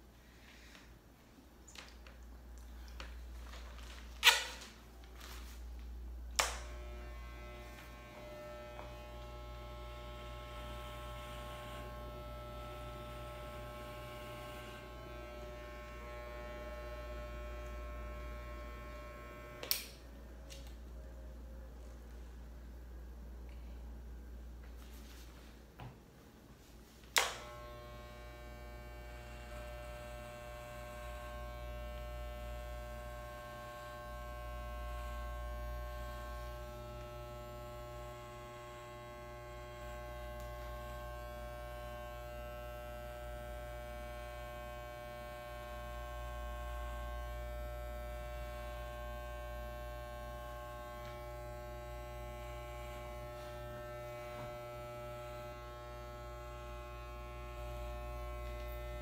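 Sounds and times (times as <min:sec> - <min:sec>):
hair clippers buzzing: 0:06.3 - 0:20.0, 0:27.1 - 0:59.0
hair clippers switch click: 0:19.5 - 0:20.7.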